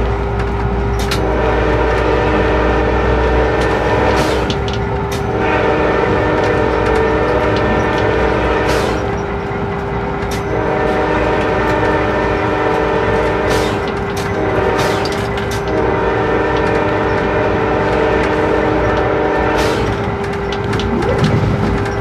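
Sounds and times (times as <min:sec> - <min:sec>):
scattered clicks: 0:00.0 - 0:01.2, 0:03.4 - 0:05.3, 0:06.2 - 0:10.6, 0:13.4 - 0:15.8, 0:16.5 - 0:17.3, 0:17.9 - 0:22.0
locomotive and rails rumbling: 0:00.0 - 0:22.0
locomotive horn blasts: 0:01.0 - 0:09.1, 0:10.4 - 0:20.0.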